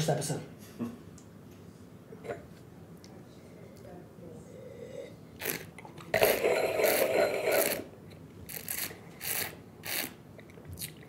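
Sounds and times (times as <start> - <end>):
person slurping wine: 4.7 - 7.9.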